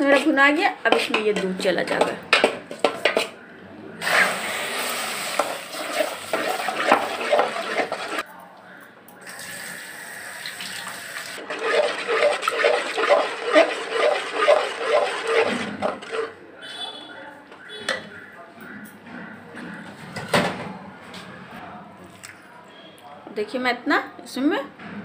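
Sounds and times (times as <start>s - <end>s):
ladle stirring wet batter: 0.0s - 3.4s, 4.0s - 8.2s, 11.4s - 16.4s.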